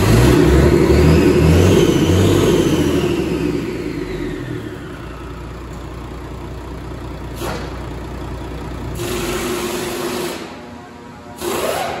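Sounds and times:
diesel engine idling: 0.0 - 11.4.

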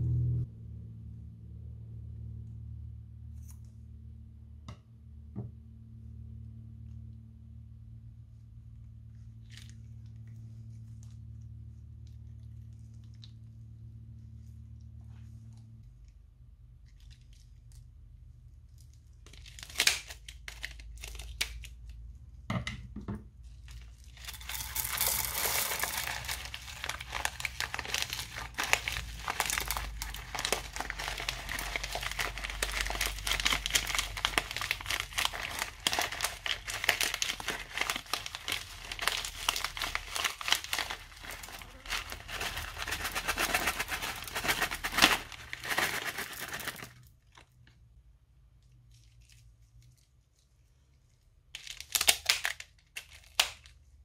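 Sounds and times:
plastic piping bag crinkling: 18.6 - 22.0, 23.5 - 47.5, 51.6 - 53.8.

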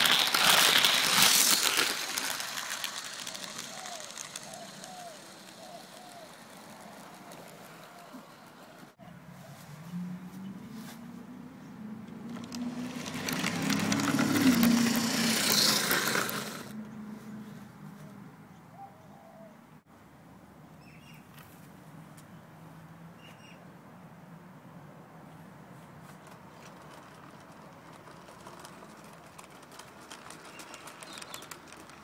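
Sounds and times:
model train motor hum: 0.0 - 9.0, 12.3 - 16.7, 26.2 - 32.0
wheels rattling on rails: 0.0 - 9.0, 12.1 - 16.8, 26.0 - 32.0.

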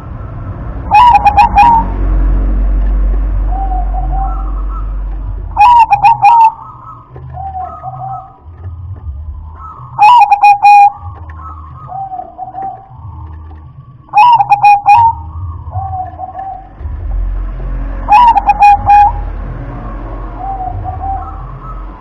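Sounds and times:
dove cooing: 0.9 - 2.0, 3.4 - 8.6, 9.4 - 13.5, 14.1 - 16.8, 18.1 - 19.2, 20.4 - 22.0.

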